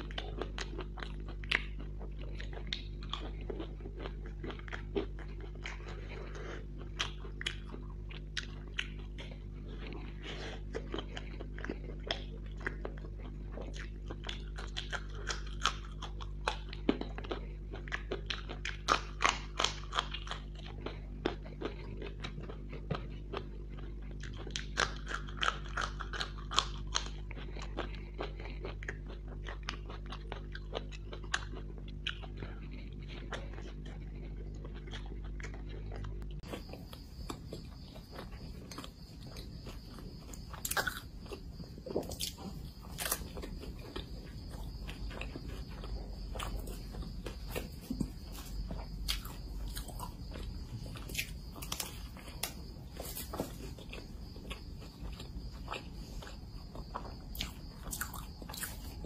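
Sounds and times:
crunchy eating and chewing: 0.0 - 59.0
steady low hum: 0.0 - 59.0.

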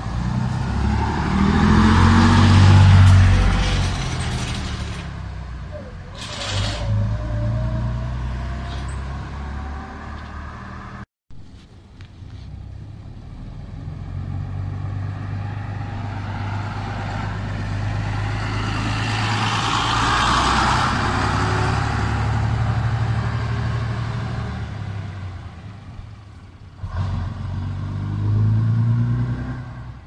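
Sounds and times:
engine revving sharply: 0.0 - 5.1
diesel bus driving past: 0.0 - 11.0, 12.2 - 30.0.

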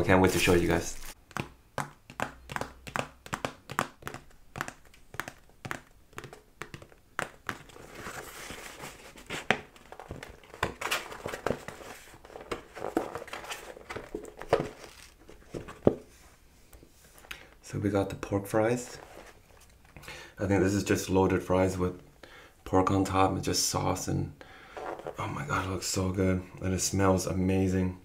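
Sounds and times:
paper rustling and crinkling: 0.3 - 1.2, 7.5 - 16.0, 18.8 - 19.8
paper boxes tapping and knocking: 1.2 - 16.1.

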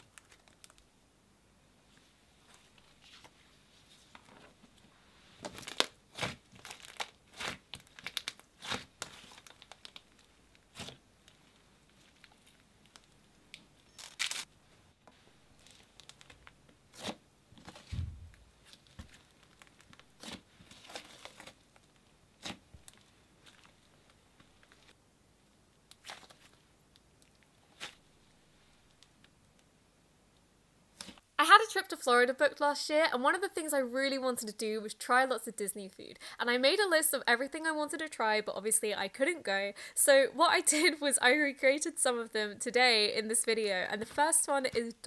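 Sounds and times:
dull low thump: 17.9 - 18.4.

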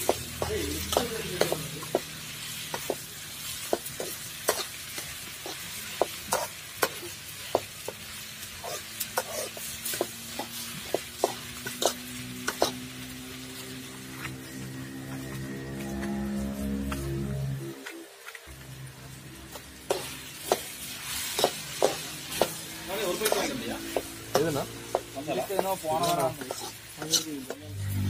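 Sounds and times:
chicken sizzling in a pot: 0.0 - 28.0
metal ladle scraping a pot: 26.0 - 27.3.

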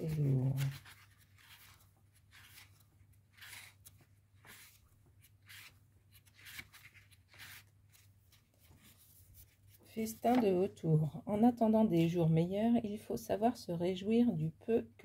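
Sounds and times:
soft paper rustles: 0.0 - 10.8.

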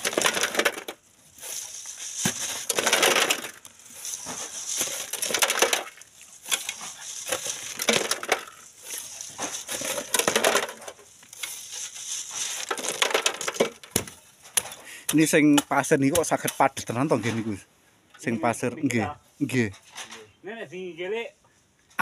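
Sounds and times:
shovel scraping into gravel: 0.0 - 13.6
gravel rattling on wire sieve: 0.0 - 14.8.

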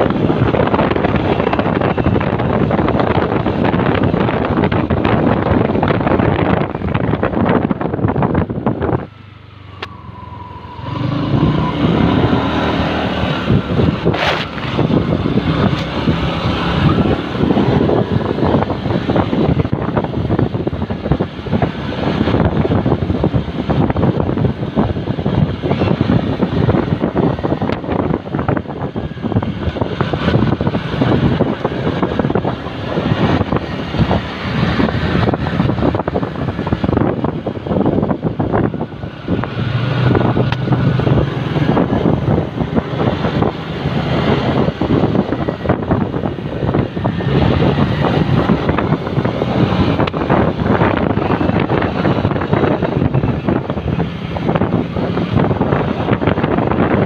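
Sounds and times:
motorcycle engine: 0.0 - 57.0
wind buffeting microphone: 0.0 - 57.0
tyre noise: 11.0 - 20.5.

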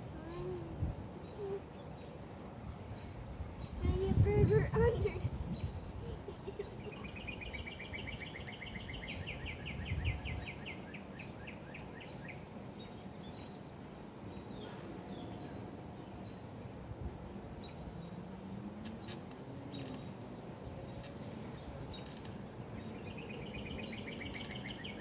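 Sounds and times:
outdoor ambient noise: 0.0 - 25.0
bird trilling: 23.2 - 25.0.

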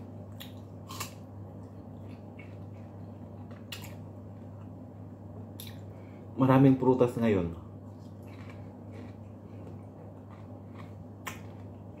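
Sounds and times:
steady low hum: 0.0 - 12.0
wet eating smacks and clicks: 8.0 - 11.8.

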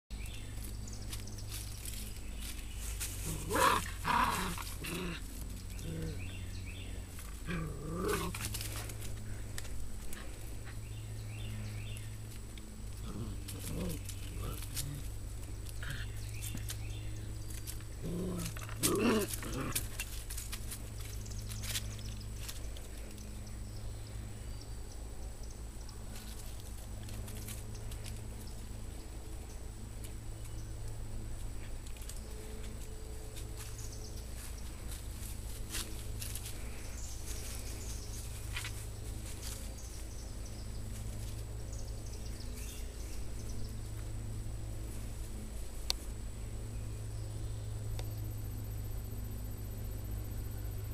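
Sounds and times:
steady low rumble: 0.1 - 50.9
paws scraping on stone: 0.6 - 6.2
puppies growling: 3.0 - 11.0, 12.8 - 21.5.

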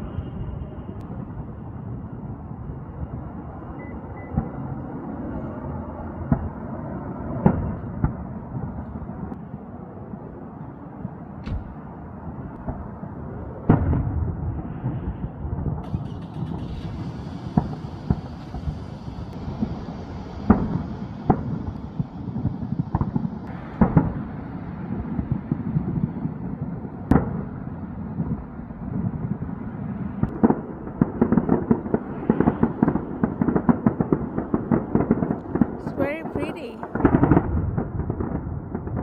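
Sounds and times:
fireworks crackling pops: 11.4 - 11.8, 14.7 - 24.3, 30.2 - 39.0
firework sharp bangs: 12.5 - 39.0.

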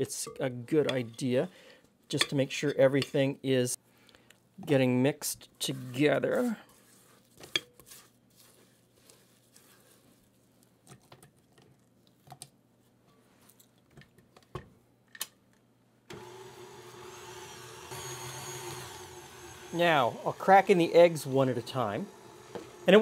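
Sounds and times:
spatula scraping glass bowl: 5.6 - 10.0
stand mixer motor humming: 16.1 - 23.0.

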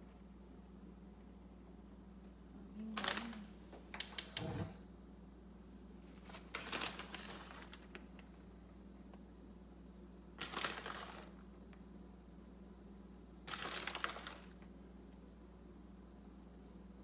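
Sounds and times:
steady low hum: 0.0 - 6.6
plastic bag crinkling and rustling: 2.9 - 3.6, 6.1 - 8.4, 10.4 - 11.5, 13.5 - 14.7.

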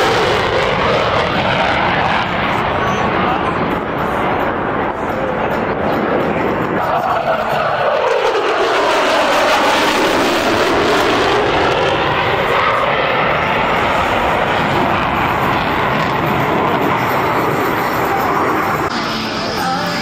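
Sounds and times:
jet engine roaring: 0.0 - 20.0
whining tone dipping and rising: 0.0 - 20.0.

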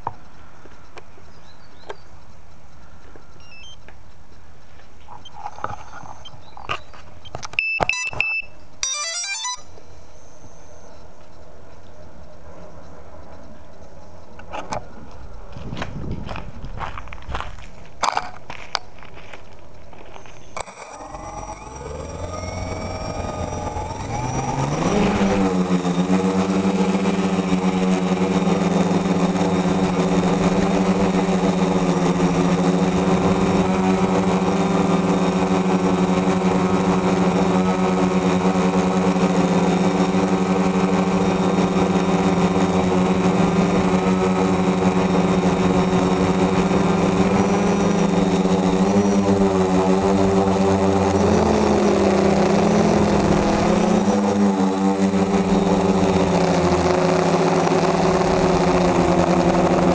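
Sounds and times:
thin high whine: 5.1 - 6.6, 7.5 - 11.4, 20.0 - 59.9
drone motors humming: 8.8 - 16.9, 19.9 - 59.9.

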